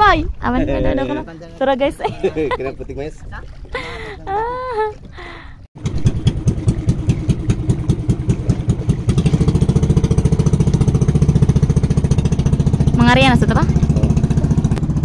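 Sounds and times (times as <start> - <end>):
small boat engine putter: 3.2 - 15.0.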